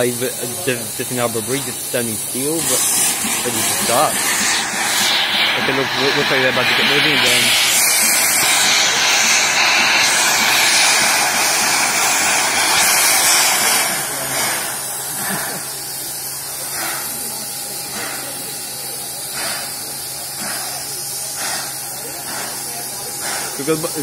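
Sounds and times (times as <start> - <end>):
short hissing bursts: 0.0 - 24.0
steam locomotive blowing off steam: 0.0 - 24.0.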